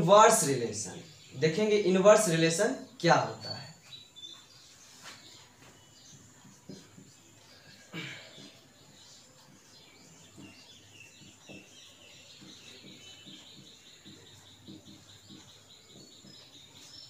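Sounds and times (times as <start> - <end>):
faint high chirping: 0.0 - 17.0
marker writing on whiteboard: 4.4 - 7.6.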